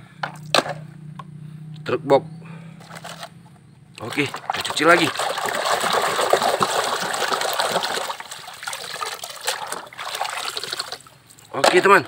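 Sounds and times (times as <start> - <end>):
water splashing and sloshing: 4.0 - 12.0.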